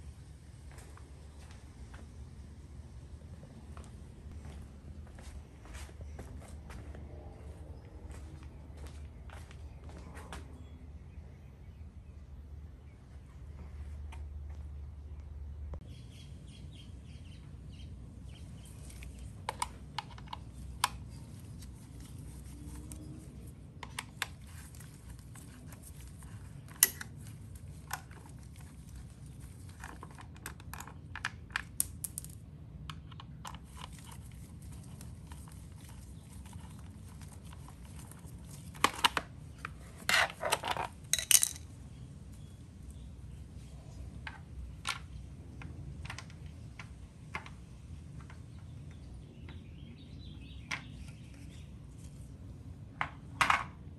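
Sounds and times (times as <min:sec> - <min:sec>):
low room hum: 0:00.0 - 0:53.9
tools clattering: 0:40.1 - 0:41.7
metal tools clicking and clinking: 0:40.5 - 0:41.7.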